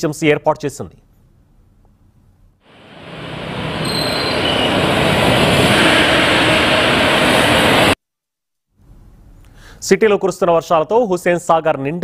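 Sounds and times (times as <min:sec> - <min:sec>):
loud steady rushing noise: 0:02.7 - 0:08.0.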